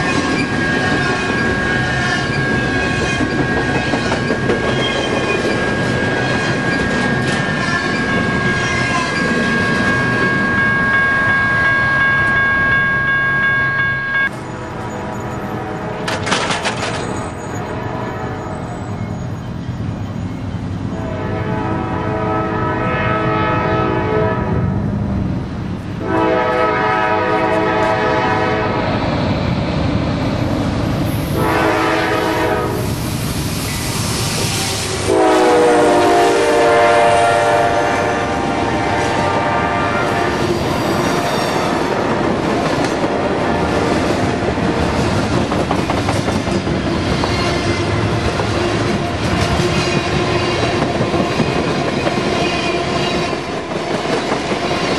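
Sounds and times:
freight train cars rumbling: 0:00.0 - 0:54.9
locomotive air horn blasts: 0:10.0 - 0:16.2, 0:17.2 - 0:18.8, 0:20.9 - 0:24.6, 0:26.0 - 0:28.8, 0:31.4 - 0:32.9, 0:34.5 - 0:41.3
wheels clacking over rail joints: 0:16.0 - 0:17.4.

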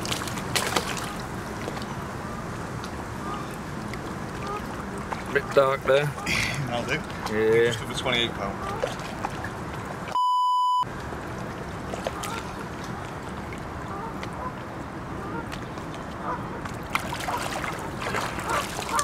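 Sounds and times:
hands splashing in water: 0:00.0 - 0:01.9, 0:16.9 - 0:19.0
wind: 0:00.0 - 0:19.0
bleep tone: 0:10.2 - 0:10.8
geese honking: 0:18.4 - 0:19.0.

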